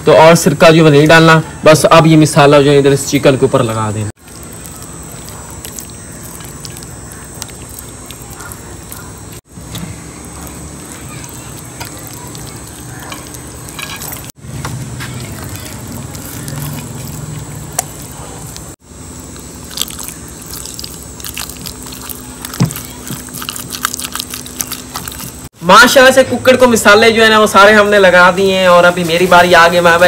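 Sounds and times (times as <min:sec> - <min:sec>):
hands squishing raw chicken: 0:04.2 - 0:25.5.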